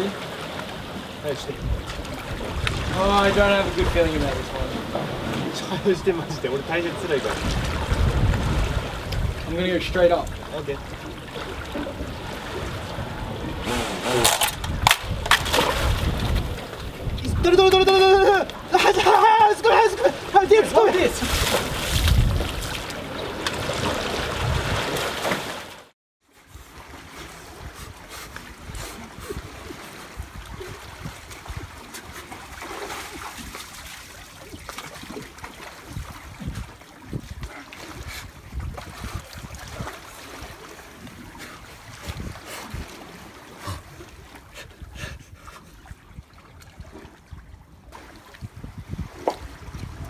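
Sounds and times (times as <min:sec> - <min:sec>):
sea water sloshing on concrete: 0:00.0 - 0:17.5, 0:18.3 - 0:25.9, 0:26.6 - 0:44.9, 0:45.7 - 0:50.0
wind rumble on microphone: 0:01.4 - 0:05.6, 0:07.2 - 0:19.1, 0:21.2 - 0:25.0, 0:27.3 - 0:32.2, 0:35.8 - 0:50.0
person speaking: 0:17.3 - 0:21.4.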